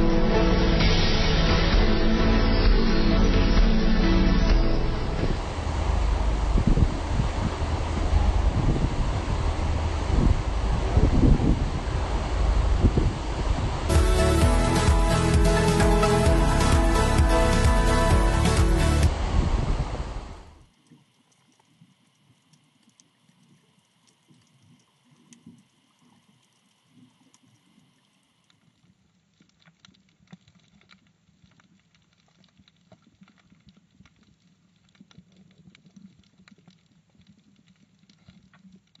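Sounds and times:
low underwater rumble: 0.0 - 21.1
underwater clicks and crackle: 20.6 - 39.0.

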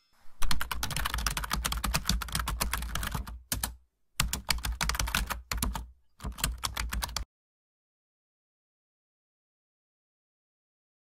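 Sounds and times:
keyboard typing clicks: 0.4 - 7.2.

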